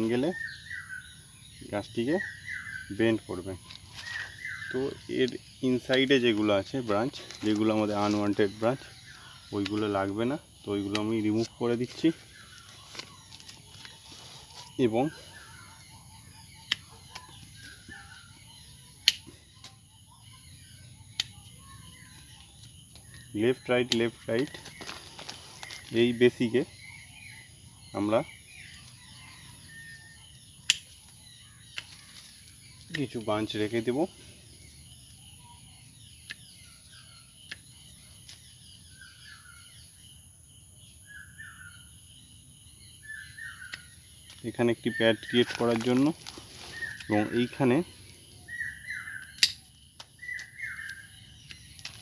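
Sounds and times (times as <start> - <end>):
birds chirping: 0.0 - 52.0
pruning shears snipping: 9.5 - 10.2, 10.8 - 11.4, 16.6 - 17.7, 19.0 - 19.8, 30.6 - 31.1
pruning shears snipping branches: 9.5 - 10.2, 10.8 - 11.4.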